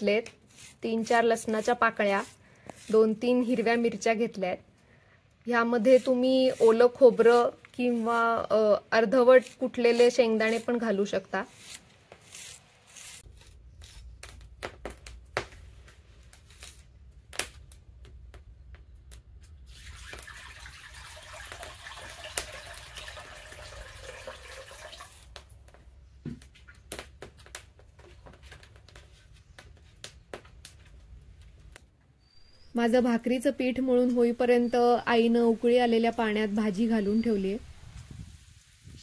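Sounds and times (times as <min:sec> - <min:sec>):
water poured into a vessel: 0:19.7 - 0:25.4.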